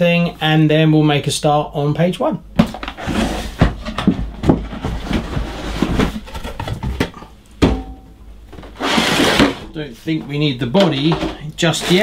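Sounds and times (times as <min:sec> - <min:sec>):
cardboard rustling: 0:02.6 - 0:07.2.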